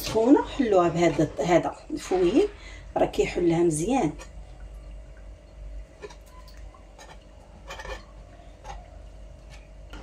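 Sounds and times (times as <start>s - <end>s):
fork scraping a dish: 7.0s - 8.9s.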